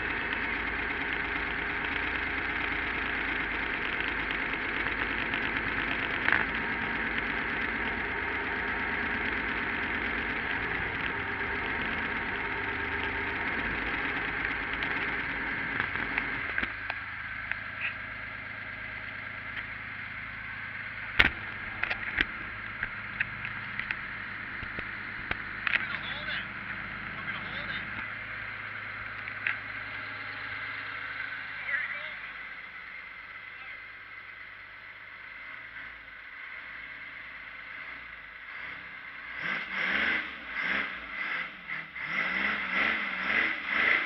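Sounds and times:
car engine idling: 0:00.0 - 0:44.0.

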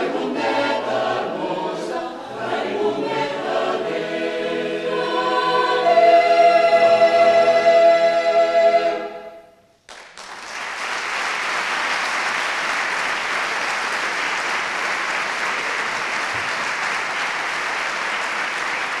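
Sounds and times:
choir holding a chord: 0:00.0 - 0:09.6
audience applause: 0:09.9 - 0:19.0.

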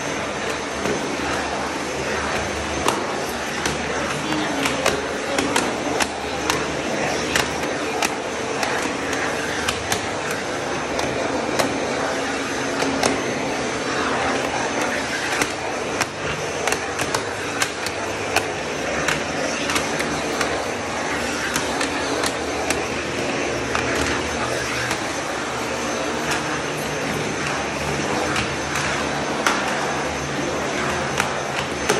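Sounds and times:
vacuum cleaner running: 0:00.0 - 0:31.9.

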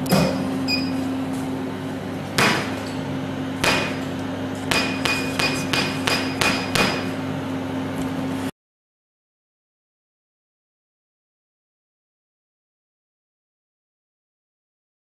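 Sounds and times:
machine cooling hum: 0:00.0 - 0:08.5
short beeps: 0:00.1 - 0:01.1.

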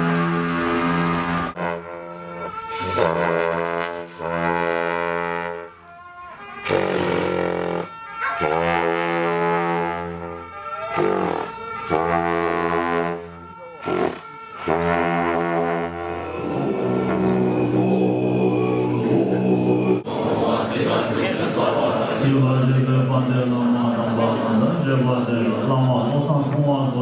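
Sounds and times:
long horns blasting: 0:00.0 - 0:20.1.

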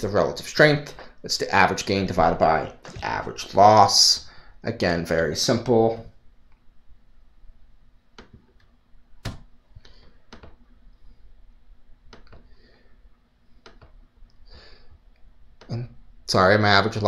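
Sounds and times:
computer mouse clicks: 0:13.6 - 0:14.0.

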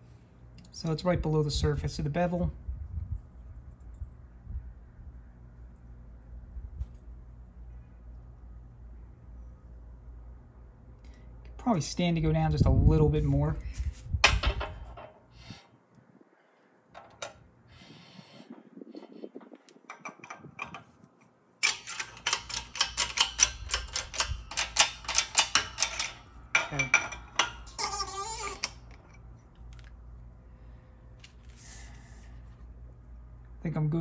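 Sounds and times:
metal gear clicking and rattling: 0:21.6 - 0:27.8.

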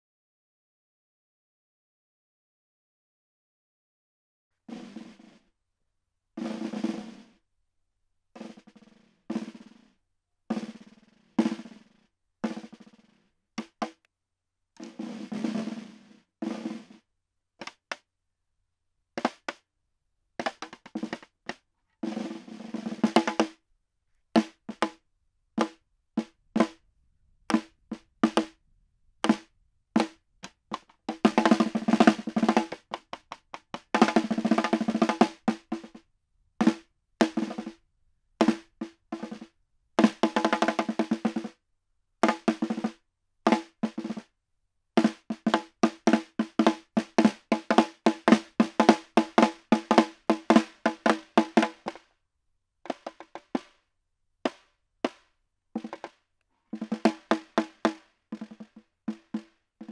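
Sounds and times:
snare drum rolls and strokes: 0:04.7 - 0:05.5, 0:06.4 - 0:07.4, 0:08.4 - 0:09.9, 0:10.5 - 0:14.0, 0:14.8 - 0:17.0, 0:17.6 - 0:18.0, 0:19.2 - 0:19.6, 0:20.4 - 0:23.6, 0:24.4 - 0:25.0, 0:25.6 - 0:26.8, 0:27.5 - 0:28.5, 0:29.2 - 0:36.0, 0:36.6 - 0:37.8, 0:38.4 - 0:41.6, 0:42.2 - 0:44.3, 0:45.0 - 0:52.0, 0:52.9 - 0:53.8, 0:54.5 - 0:59.9.

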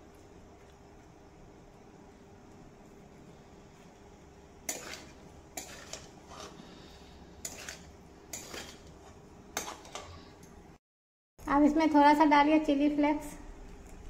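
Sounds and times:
spatula scraping steel pan: 0:04.7 - 0:10.2.

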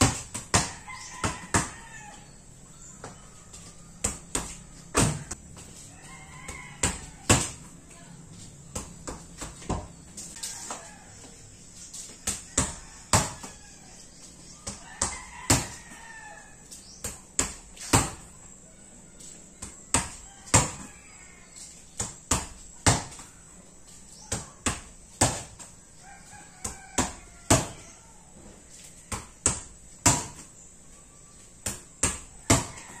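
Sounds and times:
rooster crowing: 0:00.6 - 0:07.6, 0:10.4 - 0:11.6, 0:12.2 - 0:16.7, 0:18.7 - 0:21.7, 0:25.9 - 0:29.2, 0:32.4 - 0:33.0
rubber ball bouncing: 0:04.0 - 0:05.4.

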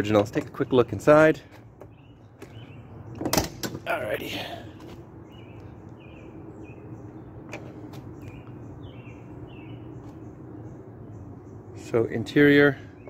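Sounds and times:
bird chirping: 0:00.0 - 0:13.0.

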